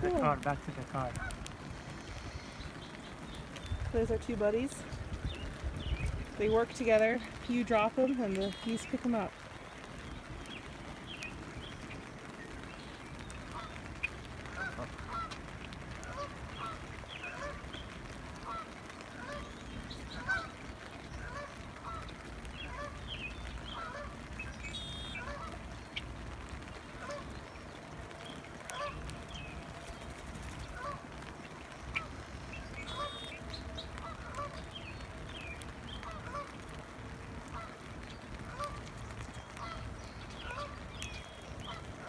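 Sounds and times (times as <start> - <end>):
geese honking: 6.4 - 9.4, 13.4 - 26.0, 26.6 - 36.8, 37.5 - 42.0.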